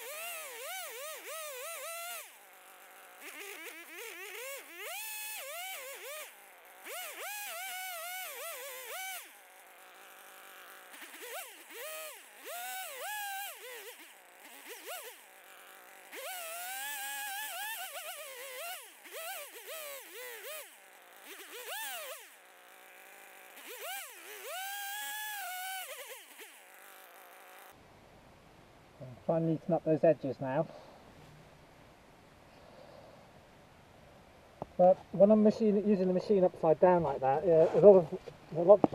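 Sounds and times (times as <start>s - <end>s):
chainsaw engine revving: 0.0s - 27.8s.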